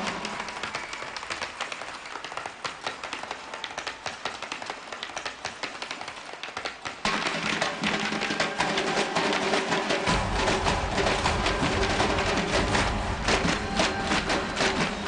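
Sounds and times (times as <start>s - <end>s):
music: 0.0s - 2.3s, 6.6s - 15.0s
tap shoes clattering on stage: 0.0s - 15.0s.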